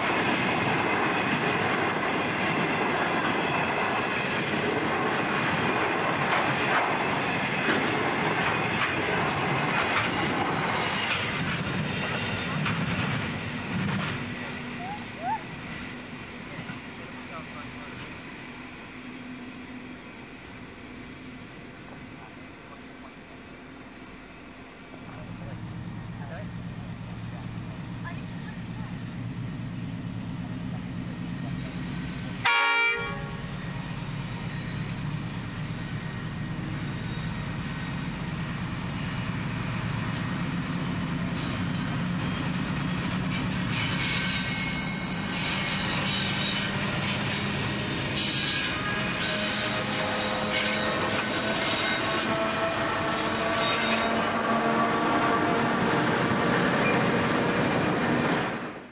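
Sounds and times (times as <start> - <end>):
diesel locomotive engine rumble: 0.0 - 58.9
wheel squeal and clatter: 6.8 - 7.2, 10.0 - 13.2, 31.3 - 32.5, 34.4 - 38.8, 40.0 - 54.4
train horn toot: 32.3 - 33.5, 48.2 - 55.9.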